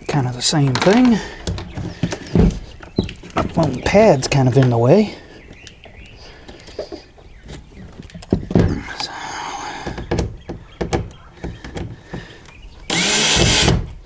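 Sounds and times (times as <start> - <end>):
plastic scraping: 0.6 - 4.8
plastic knocks and taps: 8.0 - 8.8, 9.8 - 12.3.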